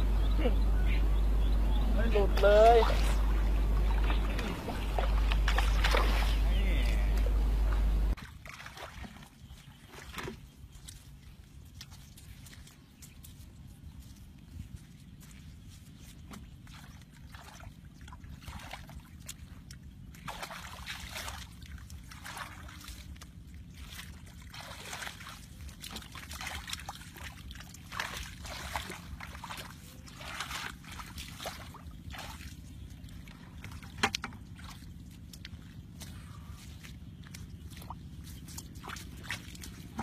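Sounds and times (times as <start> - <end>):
steady low rumble: 0.0 - 8.2
shallow water sloshing and splashing: 2.0 - 40.0.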